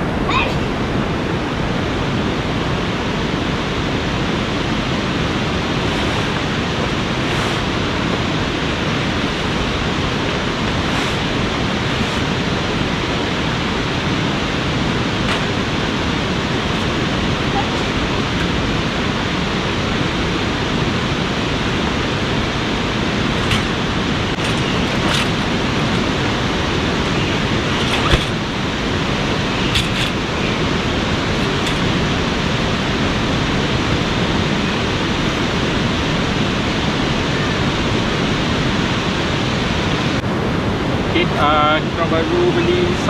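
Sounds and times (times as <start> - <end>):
fast-flowing river rushing: 0.0 - 43.0
metal camp cot frame clicking: 24.4 - 26.1, 29.7 - 30.2, 31.4 - 31.9.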